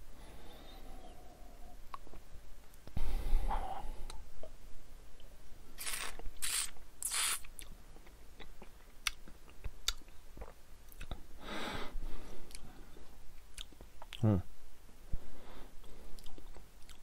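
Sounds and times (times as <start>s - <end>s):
person breathing: 0.0s - 1.8s, 3.0s - 4.2s, 11.3s - 13.2s, 15.1s - 16.4s
wet mouth clicks: 5.8s - 7.7s.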